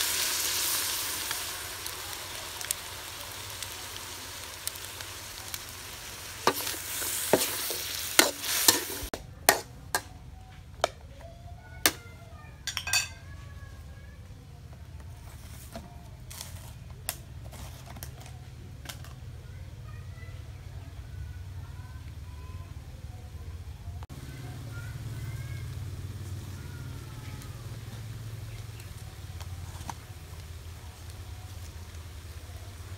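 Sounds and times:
frying sizzle: 0.0s - 10.9s, 11.5s - 32.9s
spoon clinking and scraping wok: 6.4s - 10.2s, 12.6s - 13.3s.

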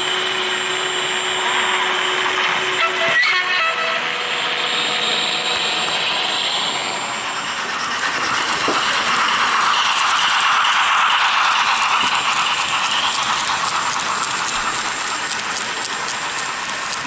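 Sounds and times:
model diesel railcar engine sound: 0.0s - 17.0s
model train wheels rattling on track: 5.9s - 17.0s.

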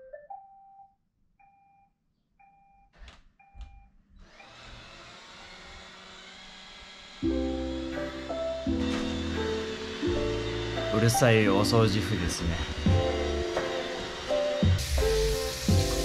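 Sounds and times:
robot vacuum motor whir: 4.2s - 16.0s.

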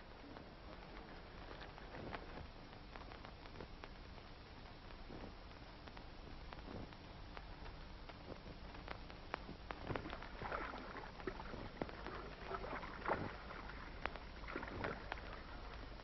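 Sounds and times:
soundtrack hiss: 0.0s - 16.0s
paddles splashing in water: 9.8s - 16.0s.

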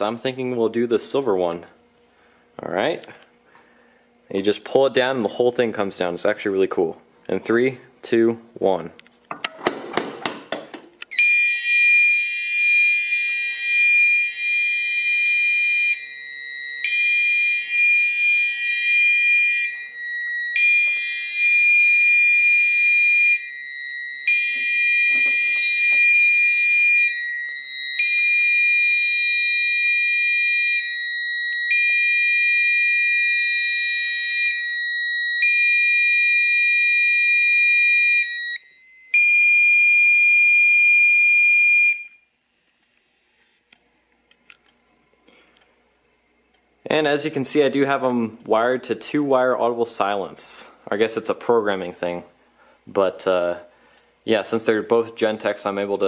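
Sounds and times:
fire alarm horn blasts: 11.1s - 42.3s
steady alarm tone: 11.1s - 42.3s.

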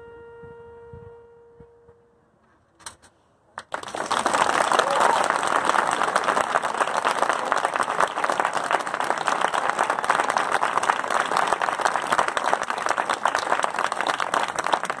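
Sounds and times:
crowd applauding: 3.6s - 15.0s.

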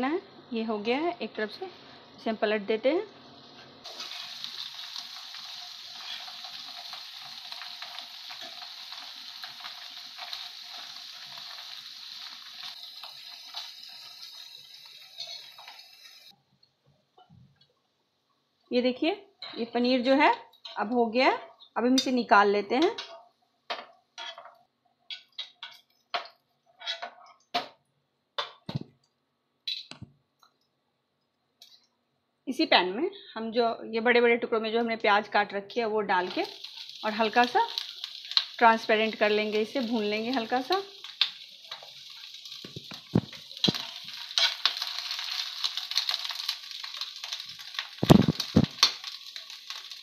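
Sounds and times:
onions sizzling in a frying pan: 0.0s - 16.4s, 34.8s - 50.0s
steel spoon clinking on pan: 15.2s - 15.7s.

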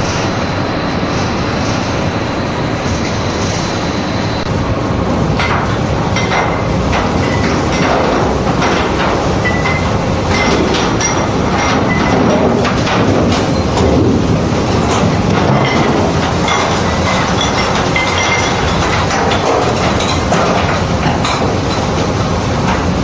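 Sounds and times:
machine mechanical rumble: 0.0s - 23.0s
clattering knocks: 5.3s - 23.0s.

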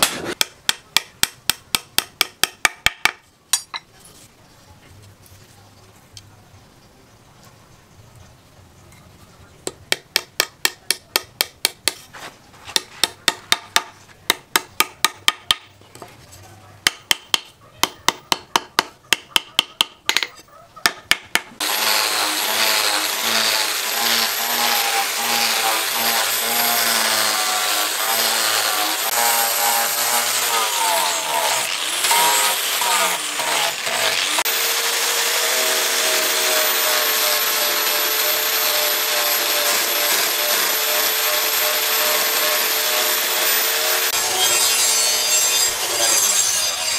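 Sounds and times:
angle grinder sanding wood: 21.6s - 46.9s.

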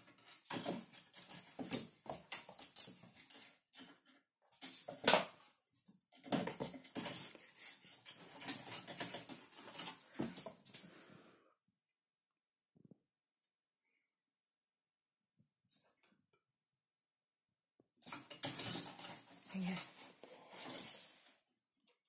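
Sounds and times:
kitten claws scratching wooden table: 6.5s - 10.5s.

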